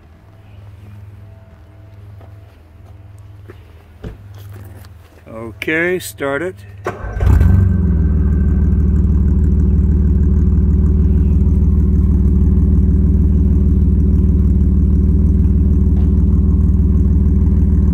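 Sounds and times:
car engine idling: 0:06.5 - 0:17.9.

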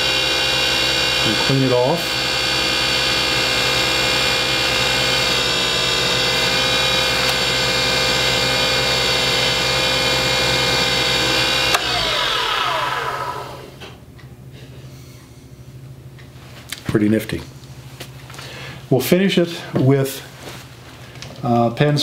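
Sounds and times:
lathe motor whining: 0:00.0 - 0:14.0.

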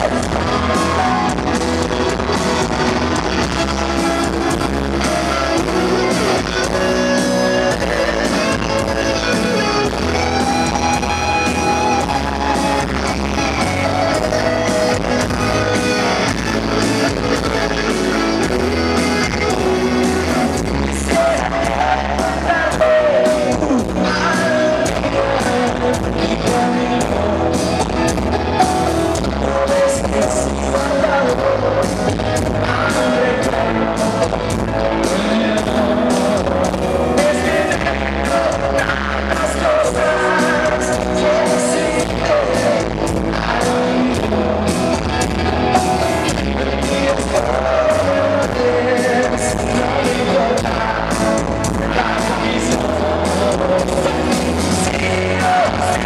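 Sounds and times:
electric guitar lead: 0:00.0 - 0:56.0
person singing: 0:00.0 - 0:56.0
rock band playing live: 0:00.0 - 0:56.0.

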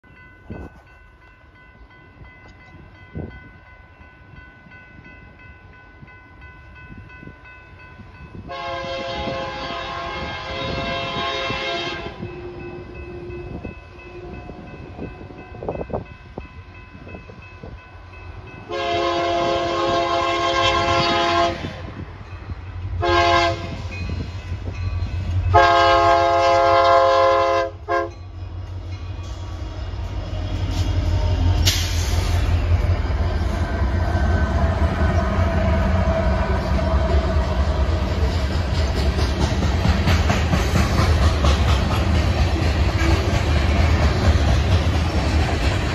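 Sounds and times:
diesel locomotive rumble: 0:07.9 - 0:45.9
train air horn blasts: 0:08.4 - 0:14.8, 0:18.7 - 0:21.8, 0:23.0 - 0:24.0, 0:25.5 - 0:28.2.

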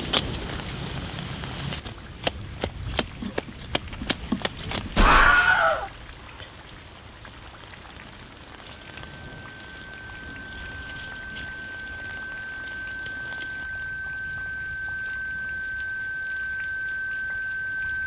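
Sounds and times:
rain-like hiss: 0:00.0 - 0:18.0
high-pitched tone: 0:08.8 - 0:18.0.

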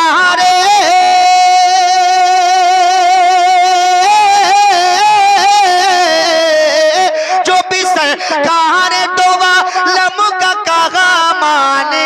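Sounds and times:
man singing unaccompanied: 0:00.0 - 0:12.0.

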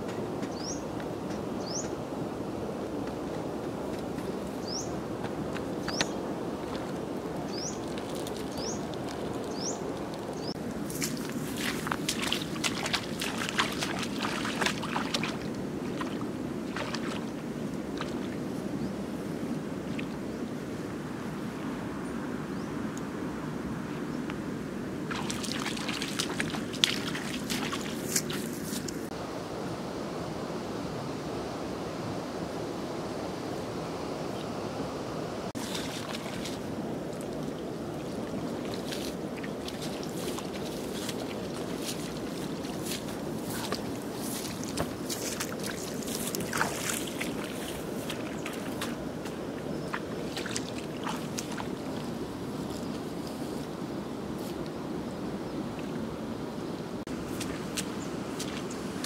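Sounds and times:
wind noise on microphone: 0:00.0 - 0:59.0
wading in muddy water: 0:05.2 - 0:19.1, 0:25.0 - 0:29.1, 0:35.6 - 0:56.3, 0:57.0 - 0:59.0
footsteps crackling through grass: 0:07.6 - 0:16.2, 0:25.1 - 0:29.1, 0:35.6 - 0:37.4, 0:38.0 - 0:53.7, 0:57.2 - 0:59.0.

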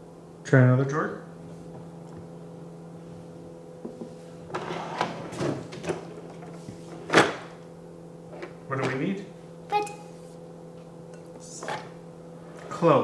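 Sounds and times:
faint steady hum: 0:00.0 - 0:13.0
kitchen drawer opening: 0:04.5 - 0:06.4.

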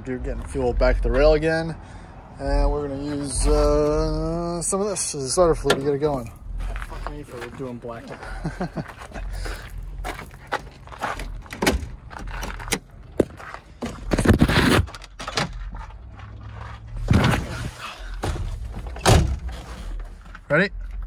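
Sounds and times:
footsteps: 0:05.6 - 0:20.4
car door thudding: 0:18.2 - 0:19.6.

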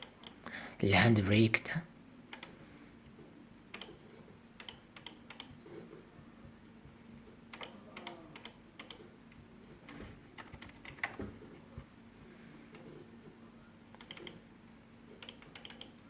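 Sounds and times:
faint steady hum: 0:00.0 - 0:16.0
computer mouse and keyboard clicking: 0:02.3 - 0:02.6, 0:03.7 - 0:04.0, 0:04.6 - 0:05.6, 0:07.5 - 0:09.1, 0:09.9 - 0:11.3, 0:13.9 - 0:14.4, 0:15.2 - 0:16.0.

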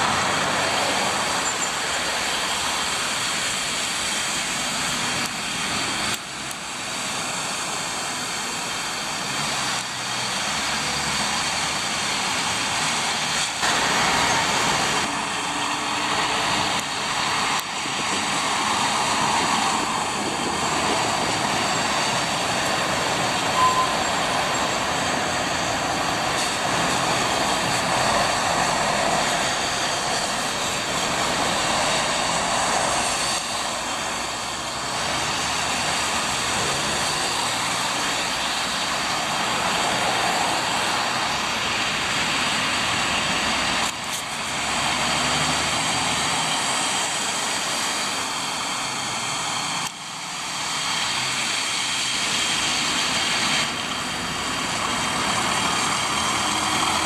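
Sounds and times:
traffic on wet road: 0:00.0 - 0:57.0
brief beep: 0:23.6 - 0:24.0.

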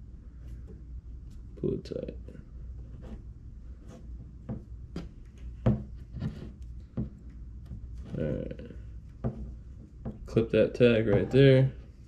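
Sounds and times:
low steady hum: 0:00.0 - 0:12.0
short knocks and rubs: 0:02.8 - 0:08.4, 0:09.1 - 0:10.4.

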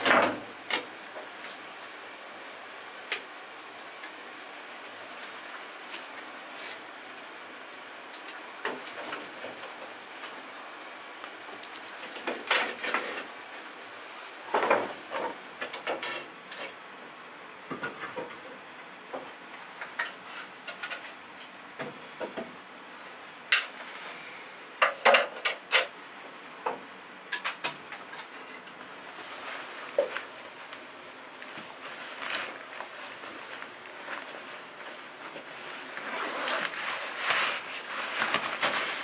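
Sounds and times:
wooden boards knocking and clattering: 0:00.0 - 0:01.2, 0:14.5 - 0:16.7.

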